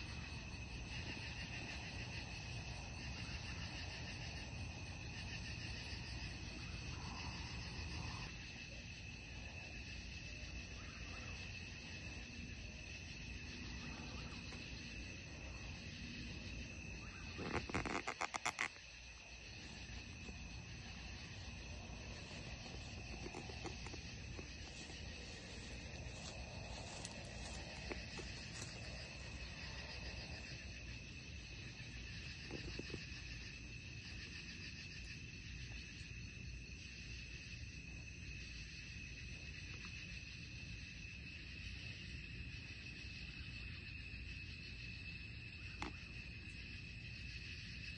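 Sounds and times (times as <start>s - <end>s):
low background rumble: 0.0s - 36.8s
crickets trilling: 0.0s - 47.9s.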